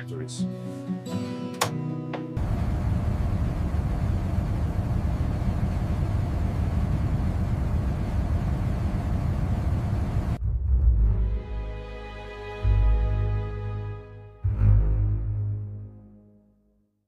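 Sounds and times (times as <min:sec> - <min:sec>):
jet engine whine: 0:02.4 - 0:10.4
jet engines rumbling: 0:02.4 - 0:10.4.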